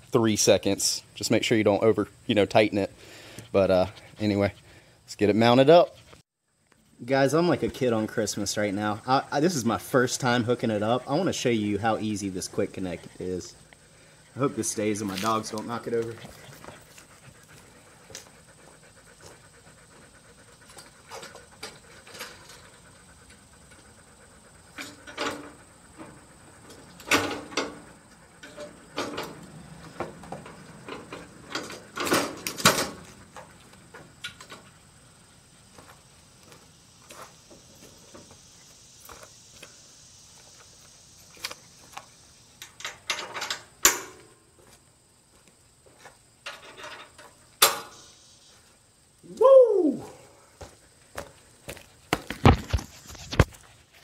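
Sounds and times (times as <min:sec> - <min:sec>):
metal bracket clanking and rattling: 0:27.0 - 0:27.8, 0:30.4 - 0:33.1, 0:42.8 - 0:44.2, 0:46.4 - 0:48.0.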